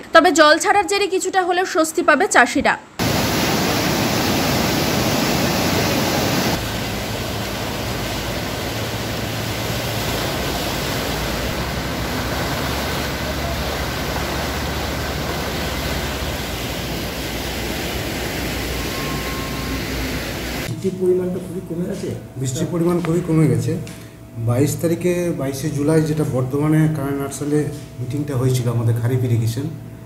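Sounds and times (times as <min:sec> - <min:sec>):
water rushing through sluice gates: 0:03.0 - 0:20.7.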